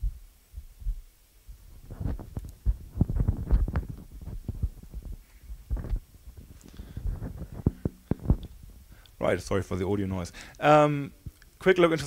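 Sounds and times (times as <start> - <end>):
microphone handling thumps: 0.0 - 9.0.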